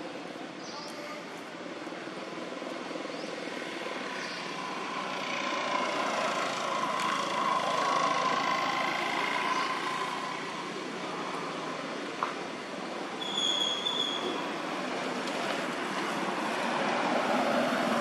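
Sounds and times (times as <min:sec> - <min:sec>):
engine drone: 0:03.8 - 0:11.9.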